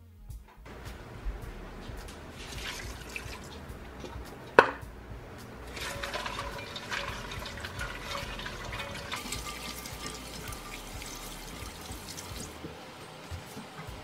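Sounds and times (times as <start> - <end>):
spatula stirring berries in water: 5.5 - 12.6.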